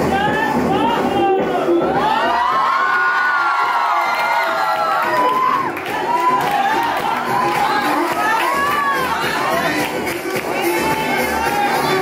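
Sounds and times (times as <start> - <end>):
crowd shouting and cheering: 0.0 - 12.0.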